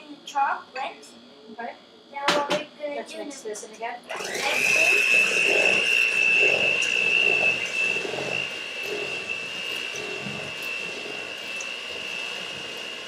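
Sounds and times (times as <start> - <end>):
electric hand mixer whining: 4.1 - 13.0.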